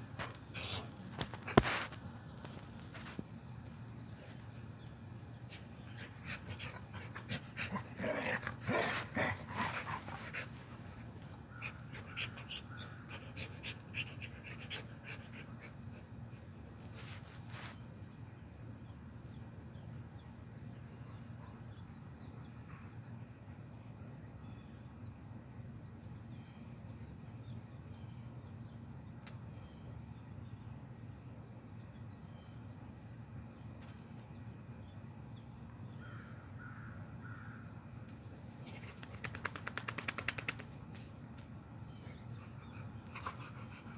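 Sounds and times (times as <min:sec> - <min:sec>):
dogs vocalising: 0:05.6 - 0:16.4, 0:42.0 - 0:43.9.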